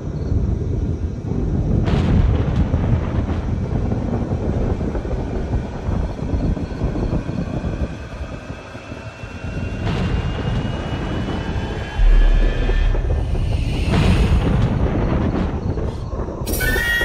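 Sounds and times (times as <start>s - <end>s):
low rumbling noise: 0.0s - 17.0s
heavy low boom: 9.5s - 16.6s
faint rising tones: 12.0s - 14.6s.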